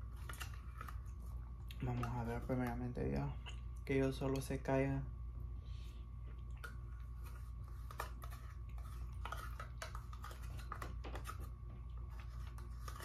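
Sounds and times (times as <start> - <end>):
steady low hum: 0.0 - 13.0
light chewing: 5.7 - 13.0.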